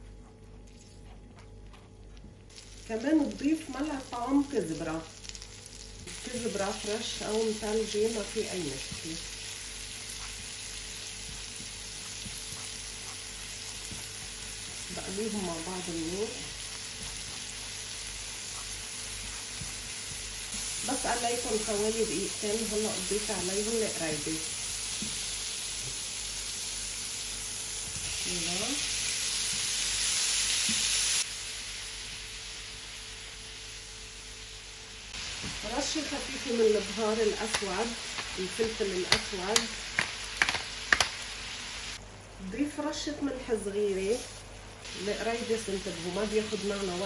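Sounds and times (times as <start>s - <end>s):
garlic sizzling in butter: 2.5s - 42.0s, 43.6s - 47.0s
spatula stirring: 9.8s - 21.0s.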